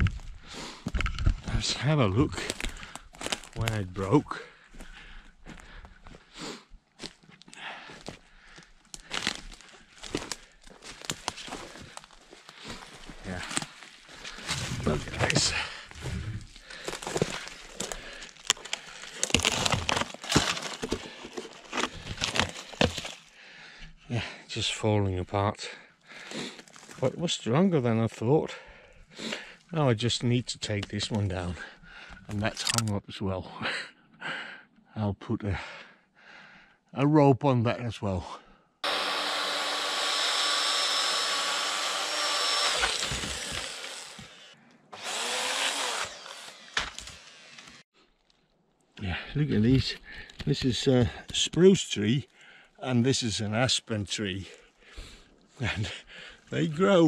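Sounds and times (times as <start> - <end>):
dry wood crackling and snapping: 2.4 - 3.8, 7.0 - 23.3, 39.5 - 44.4, 45.0 - 48.6
chainsaw cutting wood: 16.8 - 23.2, 38.8 - 47.8.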